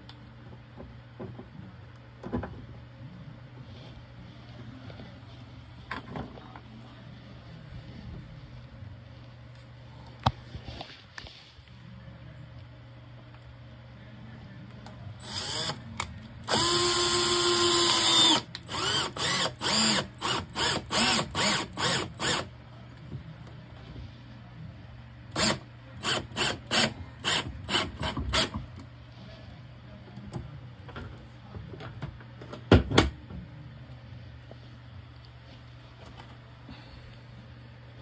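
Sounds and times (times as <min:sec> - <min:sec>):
cordless drill motor: 0:15.2 - 0:15.8, 0:16.4 - 0:22.5, 0:25.4 - 0:28.6.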